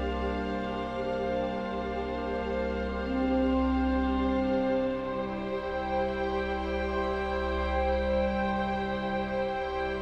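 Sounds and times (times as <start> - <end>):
slow sad background music: 0.0 - 10.0.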